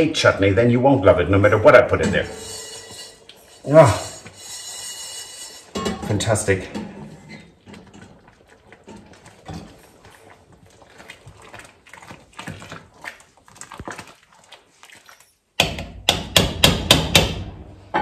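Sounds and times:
spoon scraping and clinking in pot: 1.6 - 10.4
loud sharp knocks: 15.6 - 18.0.

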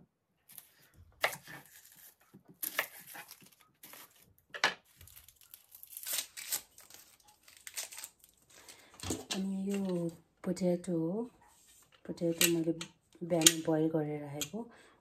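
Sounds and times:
onion skin being peeled: 0.5 - 8.7.

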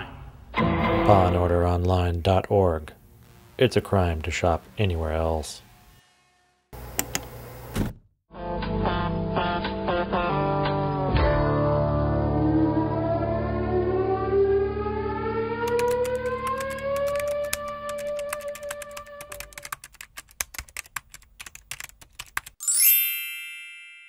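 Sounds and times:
rising siren-like wail: 12.2 - 19.4
typewriter keys clattering: 15.8 - 22.6
bright bell ding: 22.6 - 24.0.

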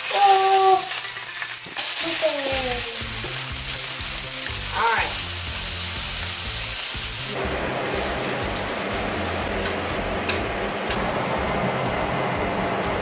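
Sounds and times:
chicken sizzling in a frying pan: 0.0 - 11.0
background music: 2.6 - 13.0.

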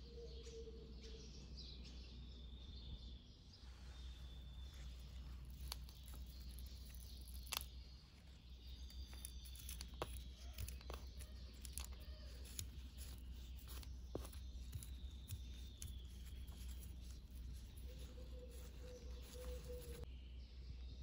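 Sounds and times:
small clicks and taps: 5.4 - 20.0.

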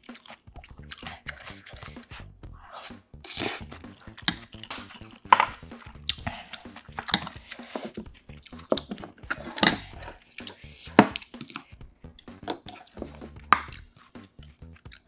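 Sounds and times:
chewing food: 0.0 - 15.0
chopsticks and spoon knocking dishes: 3.6 - 13.9.

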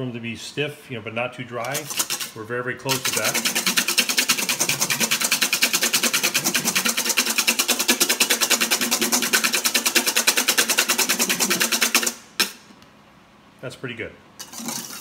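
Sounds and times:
whisk beating in metal bowl: 1.6 - 12.6, 14.4 - 15.0.

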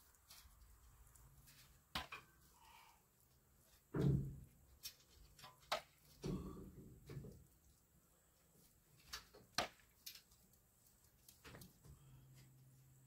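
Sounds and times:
heavy thump: 3.9 - 4.5.

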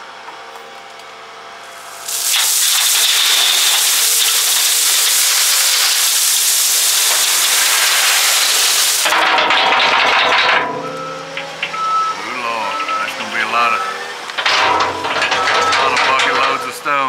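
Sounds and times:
rocks pouring into steel trailer: 1.8 - 16.8
wheel loader engine running: 8.7 - 17.0.

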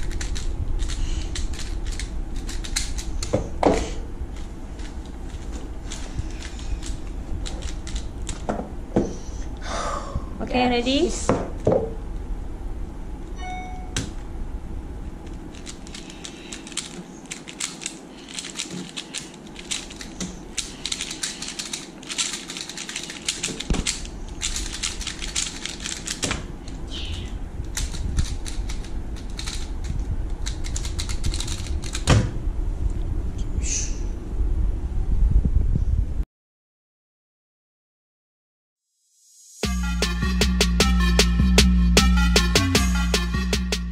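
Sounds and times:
puzzle cube plastic clicking: 15.5 - 26.2, 27.7 - 29.7.

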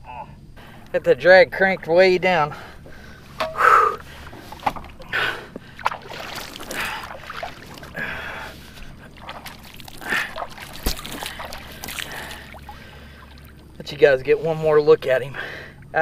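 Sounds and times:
man breathing hard: 2.5 - 5.9, 6.7 - 7.3, 7.9 - 9.2, 10.0 - 10.4, 11.2 - 13.5, 15.3 - 15.9.

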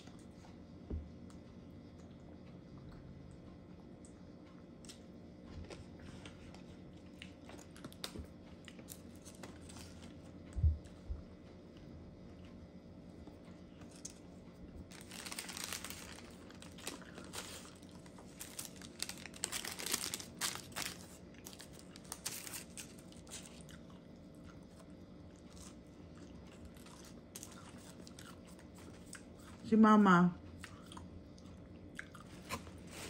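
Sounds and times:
paper wrapper crinkling: 14.9 - 23.6.

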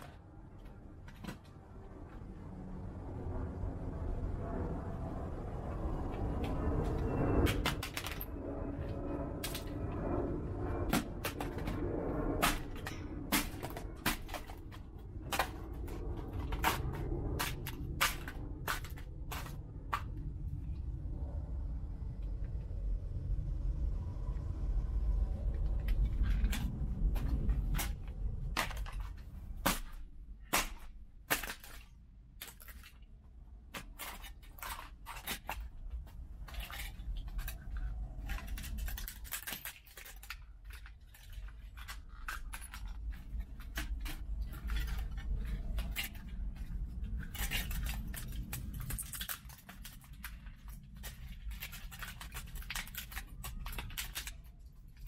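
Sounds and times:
handling and scraping: 0.0 - 2.3, 6.0 - 20.8, 25.4 - 55.0
low rumble: 0.0 - 55.0
plastic cracking and snapping: 6.4 - 20.5, 25.5 - 55.0.

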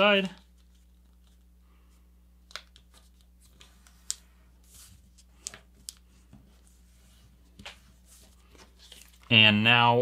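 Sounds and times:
paper being folded and creased: 6.6 - 9.3.

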